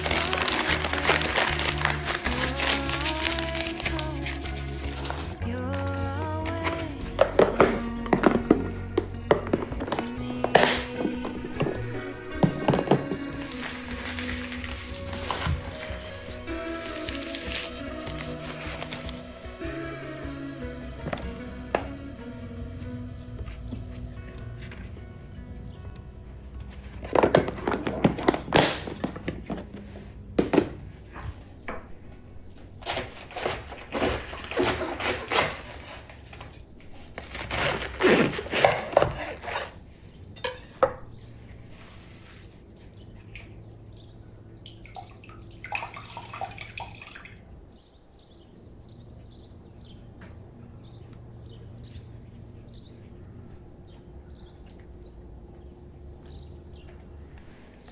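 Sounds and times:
clattering plastic containers: 0.0s - 19.3s, 26.6s - 31.9s, 32.6s - 41.2s.

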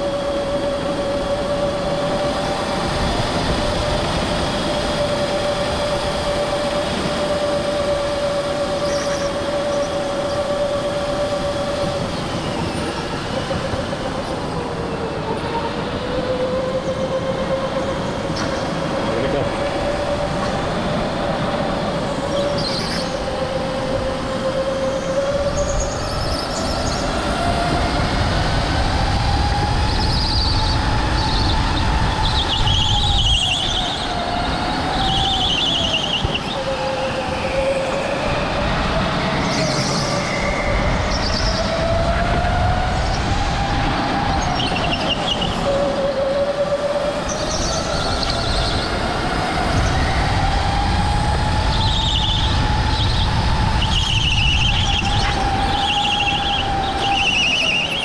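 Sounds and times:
electric go-kart motor whine: 0.0s - 58.0s
tyre squeals: 51.6s - 58.0s.

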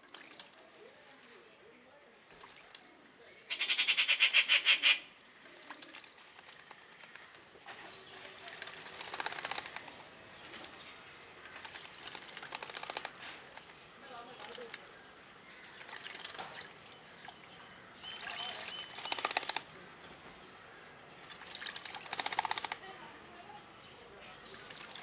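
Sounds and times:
birds splashing wings in water: 0.0s - 1.4s, 2.3s - 3.0s, 5.5s - 20.0s, 20.9s - 23.2s, 24.3s - 25.0s.

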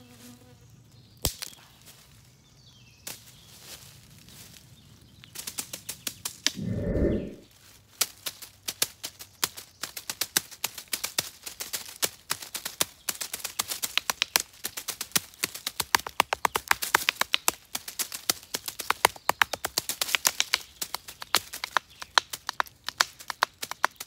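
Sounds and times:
dull low rumble: 6.6s - 7.4s.

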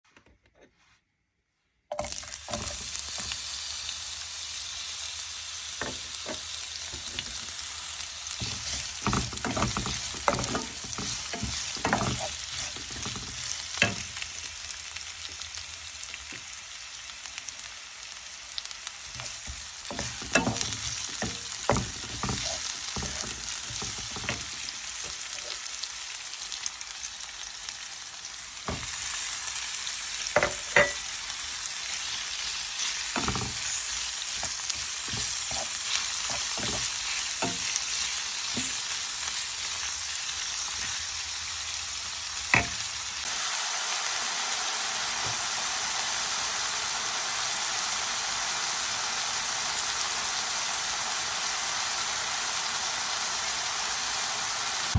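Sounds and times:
onions sizzling in hot oil: 1.9s - 54.9s
wooden spatula scraping pan: 8.4s - 14.0s, 19.2s - 24.6s, 32.8s - 38.8s.

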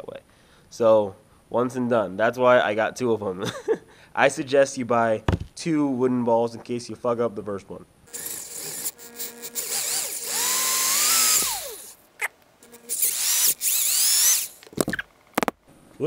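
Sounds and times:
power drill whining: 8.1s - 12.0s, 12.6s - 15.0s
drill clicks: 8.1s - 15.5s.

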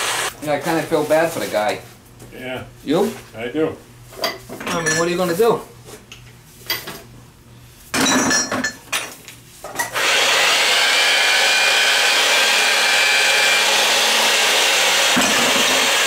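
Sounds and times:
electric motor whining: 0.0s - 0.3s, 10.0s - 16.0s.

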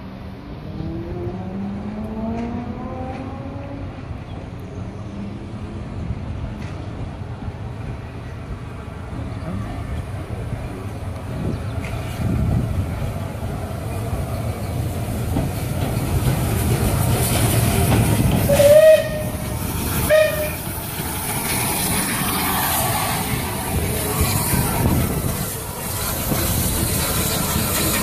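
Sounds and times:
train wheels clicking over rails: 9.4s - 28.0s
steam hiss: 14.4s - 28.0s
steam locomotive whistle toots: 18.4s - 20.8s.

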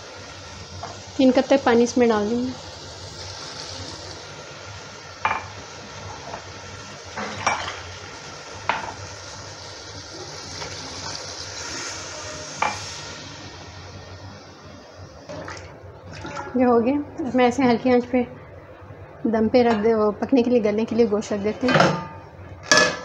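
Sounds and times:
water poured into hot pot sizzling: 0.0s - 16.6s.

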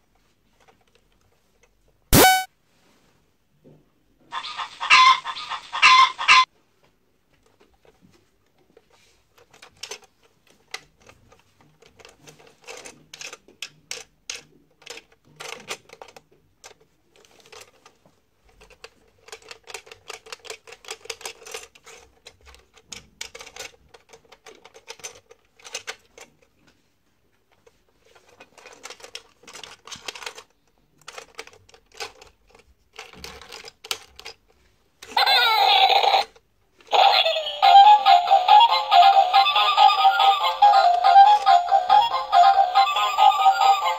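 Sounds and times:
electronic toy tune: 2.2s - 2.5s, 37.3s - 43.9s
plastic toy clicking and rattling: 7.4s - 26.8s, 27.5s - 43.9s.

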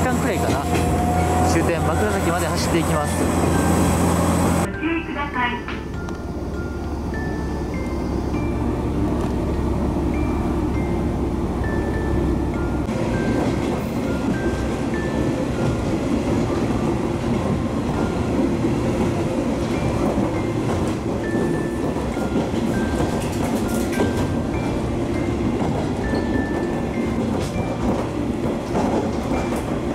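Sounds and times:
train engine and wheels rumbling: 0.0s - 29.9s
light background music: 4.6s - 8.6s.

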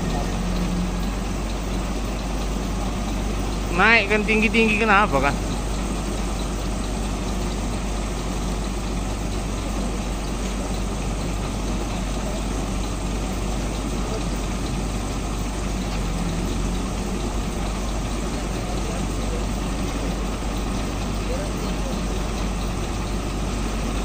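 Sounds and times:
diesel truck engine idling: 0.0s - 24.0s.

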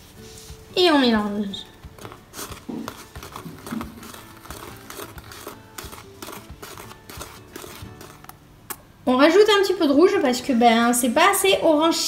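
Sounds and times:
spoon scraping plastic bowl: 1.3s - 8.4s.

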